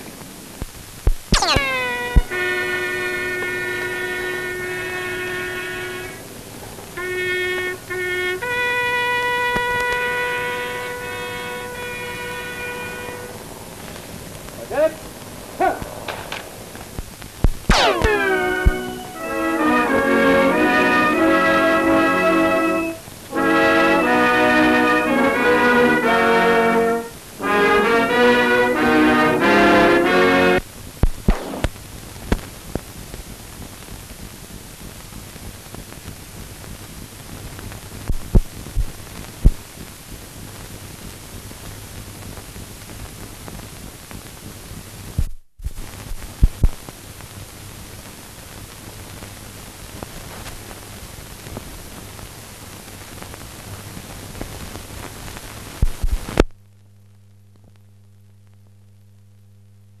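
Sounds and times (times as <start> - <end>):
film soundtrack hiss: 0.0 - 60.0
low mains hum: 0.0 - 60.0
clicks and pops: 1.1 - 2.3, 15.8 - 19.1, 31.0 - 32.4.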